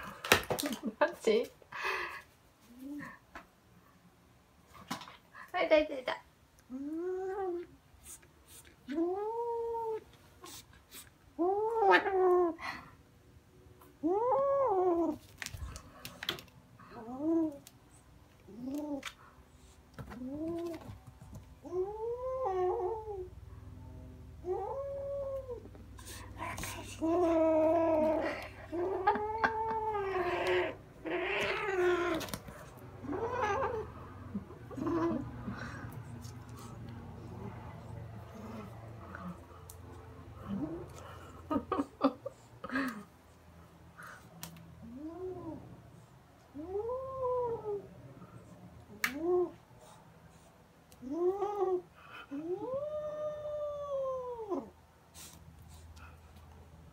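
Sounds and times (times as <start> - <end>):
kitten growling: 24.4 - 42.1.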